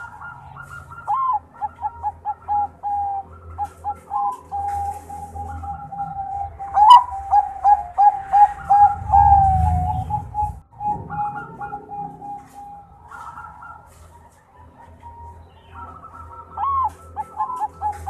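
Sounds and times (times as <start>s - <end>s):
dove cooing: 0.0s - 18.0s
low rumble: 8.2s - 13.2s.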